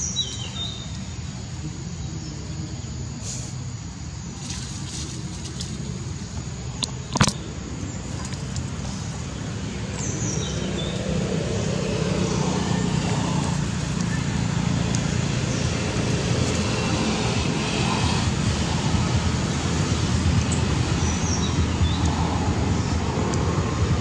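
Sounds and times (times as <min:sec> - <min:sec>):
bird chirp: 0:00.0 - 0:03.1, 0:06.2 - 0:18.2
vehicle engine rumble: 0:00.0 - 0:24.0.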